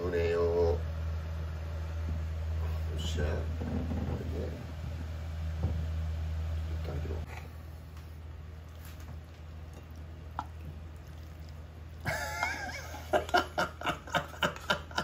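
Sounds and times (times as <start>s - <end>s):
low steady hum: 0.0s - 15.0s
man laughing: 12.0s - 15.0s.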